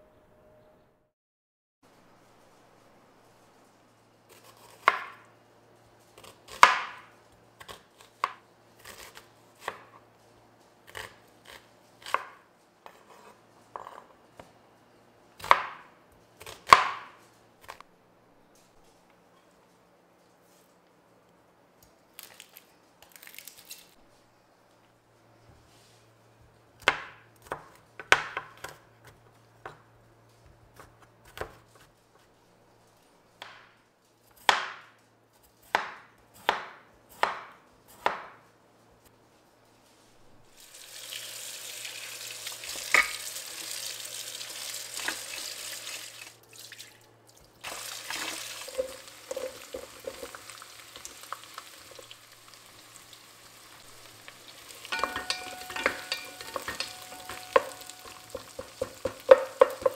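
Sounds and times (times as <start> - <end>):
knife chopping on wooden board: 4.6 - 5.2, 6.5 - 7.0, 35.7 - 38.4, 55.0 - 59.9
frying sizzle: 40.5 - 59.9
wooden spoon stirring in pot: 47.6 - 52.9, 53.8 - 59.9.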